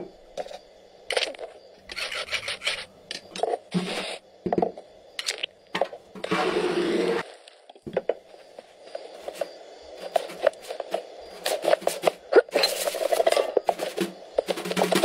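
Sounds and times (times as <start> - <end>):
hissing scrape: 1.9 - 2.9.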